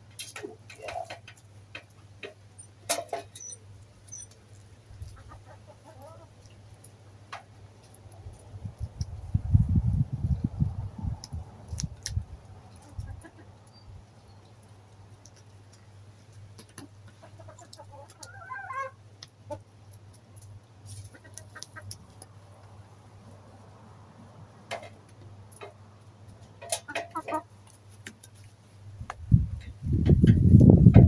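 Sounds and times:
hens clucking: 0.3 - 9.1, 11.9 - 23.4, 24.6 - 28.6.

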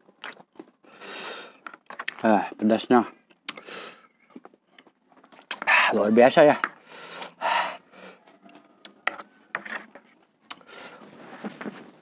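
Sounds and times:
hissing breath: 0.9 - 1.6, 3.5 - 4.1, 6.8 - 8.3, 10.6 - 11.2
cloth rubbing over mouth: 10.9 - 12.0.

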